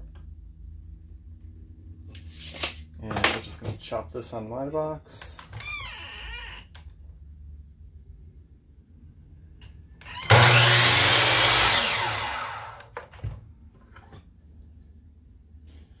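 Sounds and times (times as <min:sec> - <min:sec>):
miter saw cutting wood: 0:10.0 - 0:12.9
saw motor spinning down: 0:10.0 - 0:12.9.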